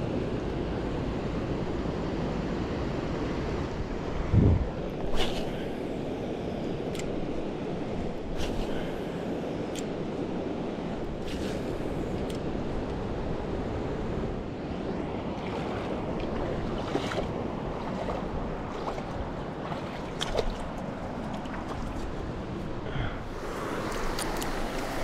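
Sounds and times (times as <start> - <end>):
wind buffeting microphone: 3.0 - 14.5
river running over rocks: 23.2 - 25.0.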